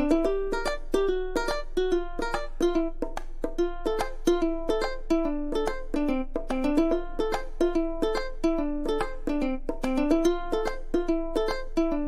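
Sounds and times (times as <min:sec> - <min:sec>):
plucked string tune: 0:00.0 - 0:12.0.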